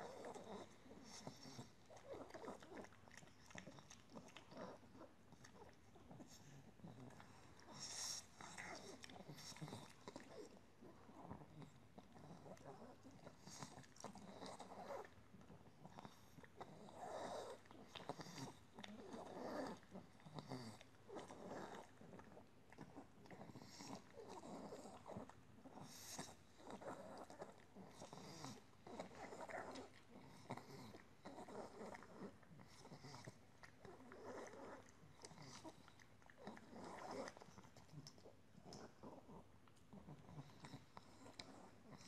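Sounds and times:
dog chewing treat: 0:00.0 - 0:42.0.

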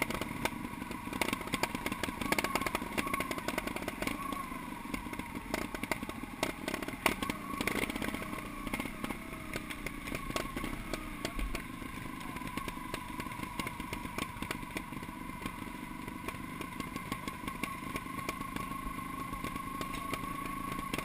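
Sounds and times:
motorcycle engine idling: 0:00.0 - 0:21.0
small clicks: 0:19.4 - 0:21.0.

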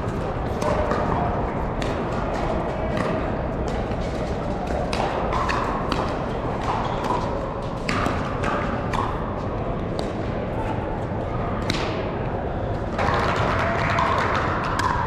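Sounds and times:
paddles striking balls: 0:00.0 - 0:10.5, 0:11.2 - 0:15.0
background noise of large hall: 0:00.0 - 0:15.0.

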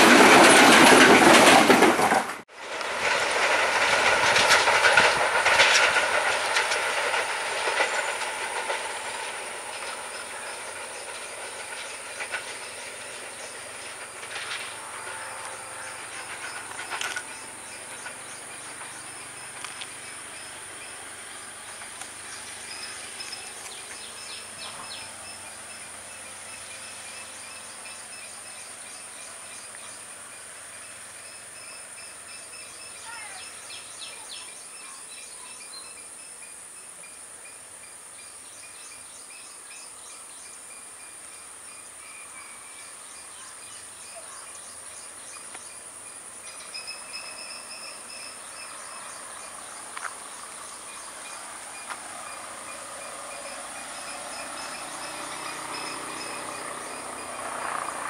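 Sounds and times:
train rumble: 0:00.0 - 0:58.0
insect drone: 0:02.5 - 0:58.0
birds chirping: 0:07.0 - 0:36.4, 0:41.8 - 0:58.0.

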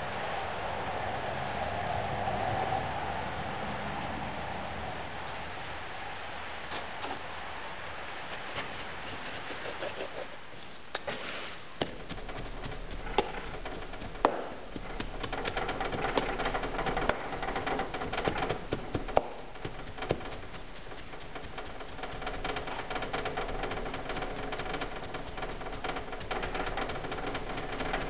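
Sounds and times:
sand rustling and scraping: 0:04.8 - 0:28.0
wooden rammer knocks: 0:11.8 - 0:28.0.

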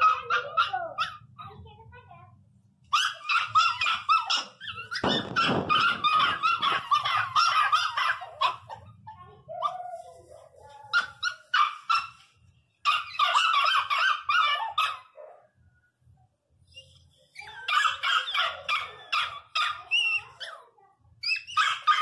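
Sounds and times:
dogs crying and yelping: 0:00.0 - 0:01.5, 0:02.8 - 0:15.5, 0:16.6 - 0:22.0
rustling noise: 0:04.9 - 0:12.6.

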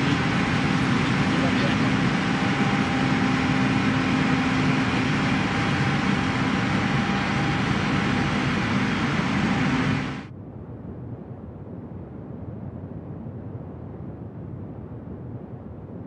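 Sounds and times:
loud machinery noise: 0:00.0 - 0:10.3
faint low hum: 0:00.0 - 0:16.0.

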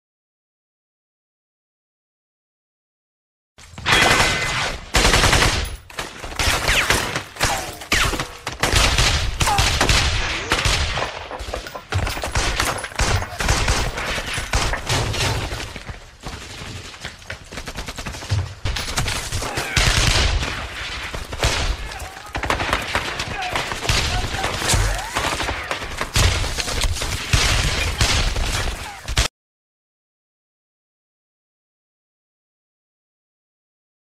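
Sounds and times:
rapid gunfire volleys: 0:03.8 - 0:15.8, 0:17.4 - 0:29.3.

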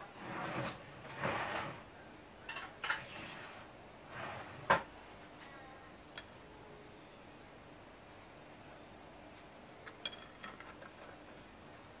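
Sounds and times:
dishes and cutlery clinking: 0:02.4 - 0:03.2, 0:09.9 - 0:11.2.

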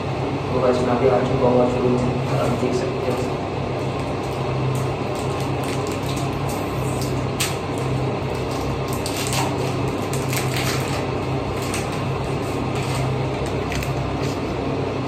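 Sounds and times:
steady low hum: 0:00.0 - 0:15.0
wrapper crinkling: 0:05.1 - 0:14.4.

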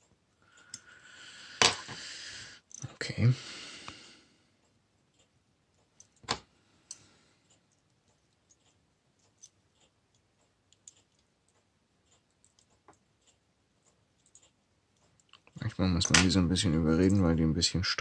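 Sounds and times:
metal tools clicking on watch parts: 0:02.7 - 0:02.9, 0:06.9 - 0:13.4.

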